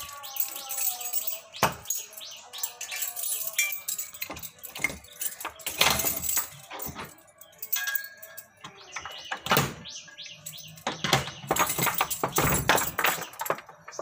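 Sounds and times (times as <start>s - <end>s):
keys and padlocks rattling: 0.0s - 14.0s
metal door bolts sliding: 4.2s - 7.3s, 8.6s - 9.8s.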